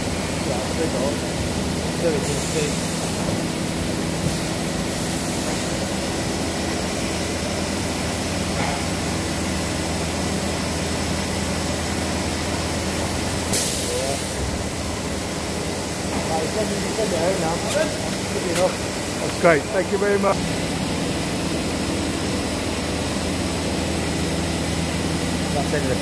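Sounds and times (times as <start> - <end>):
deeper machine hum: 0.0 - 26.0
machine hiss and hum: 0.0 - 26.0.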